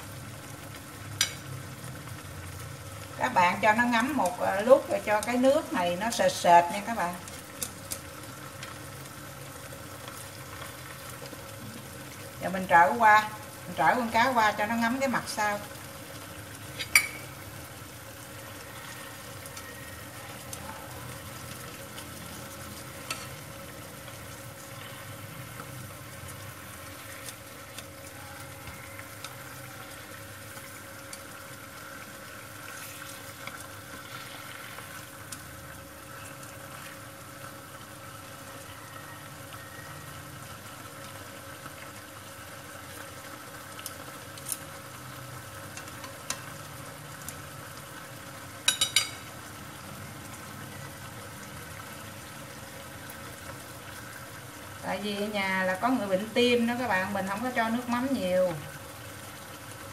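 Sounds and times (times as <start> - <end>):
glaze sizzling in a frying pan: 0.0 - 59.9
chopsticks clicking against pan: 7.2 - 8.1, 45.7 - 46.6.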